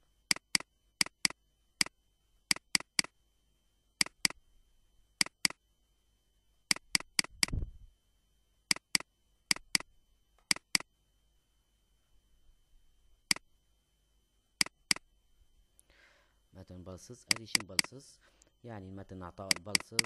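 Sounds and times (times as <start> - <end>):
mouse button clicks: 4.0 - 4.4, 10.5 - 10.8, 17.3 - 17.9, 19.5 - 20.0.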